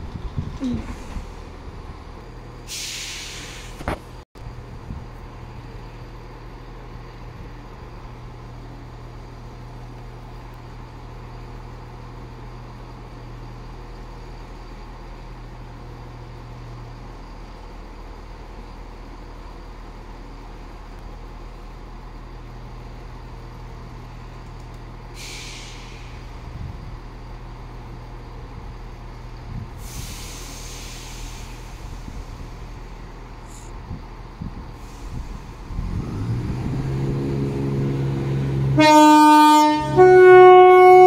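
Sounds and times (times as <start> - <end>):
train diesel engines idling: 0.0 - 41.0
compressed air hissing: 2.7 - 3.9, 25.2 - 26.4, 29.8 - 33.8, 34.7 - 35.8.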